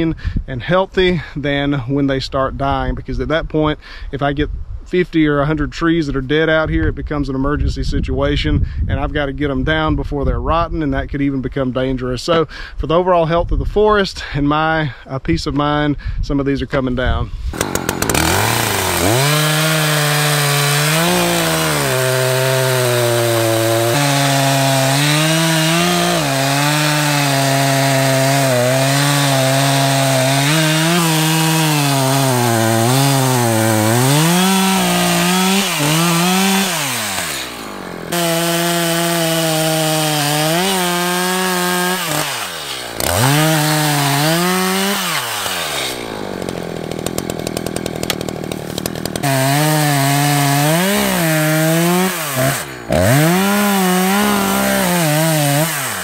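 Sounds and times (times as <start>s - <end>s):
chainsaw cutting wood: 17.5s - 56.0s.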